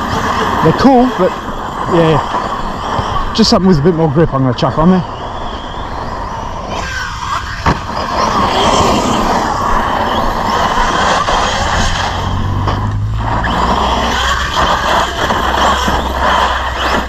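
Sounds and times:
electric motor whining: 0.0 - 17.0
tyres churning dirt: 0.0 - 17.0.

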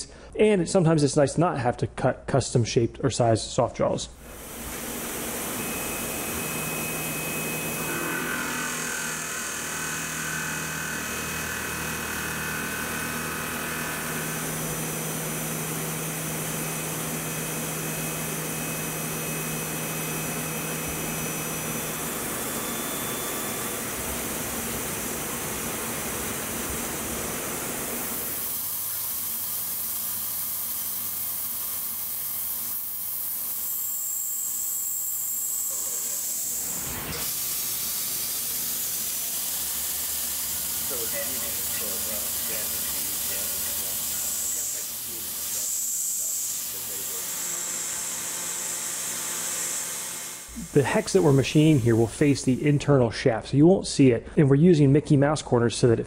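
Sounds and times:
milling machine cutting metal: 4.2 - 53.0
coolant mist hiss: 37.1 - 47.2, 50.5 - 53.0.

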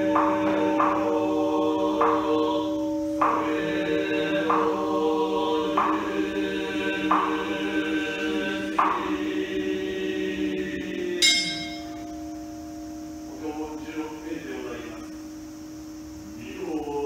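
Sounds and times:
monks chanting in a drone: 0.0 - 17.0
rhythmic struck beat: 11.2 - 12.2
bowl bell ringing: 11.2 - 15.1.

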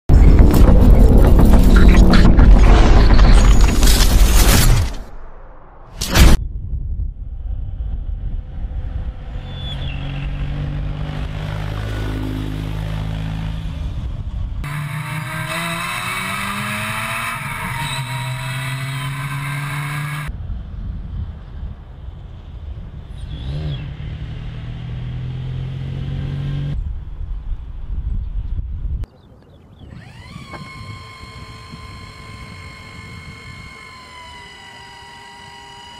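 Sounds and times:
vehicle engine running: 0.1 - 3.8
wind rushing over microphone: 6.2 - 11.3, 20.3 - 24.1, 26.7 - 33.8.

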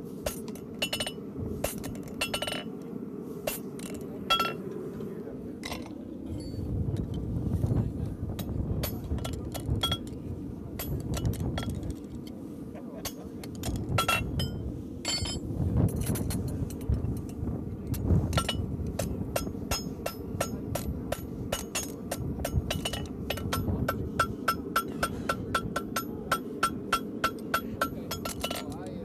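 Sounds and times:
steady low rumble: 0.0 - 29.0
hammer striking horseshoe on anvil: 18.4 - 28.8.

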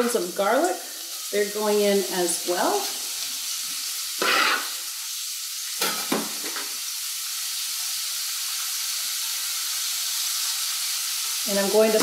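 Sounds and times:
onion sizzling in oil: 0.0 - 12.0
knife scraping cutting board: 4.2 - 4.8.

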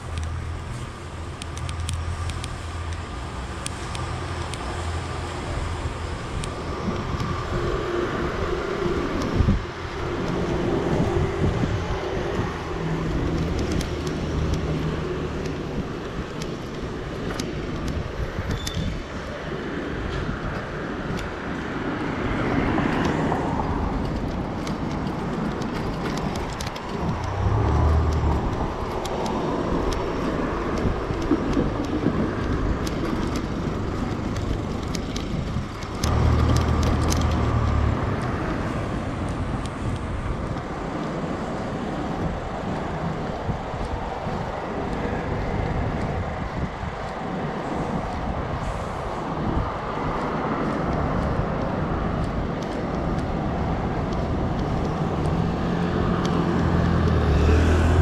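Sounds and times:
city street traffic: 0.0 - 58.0
low rumbles: 23.5 - 40.5.

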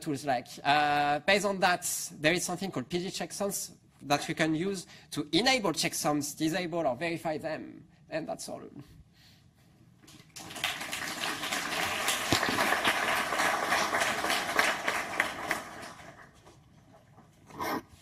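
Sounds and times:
audience applauding: 10.1 - 16.4.

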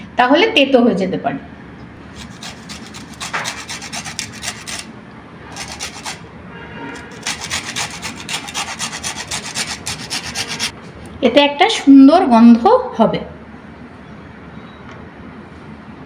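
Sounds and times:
lemon rind scraping on grater: 2.1 - 4.9, 5.5 - 6.2, 7.0 - 10.7.

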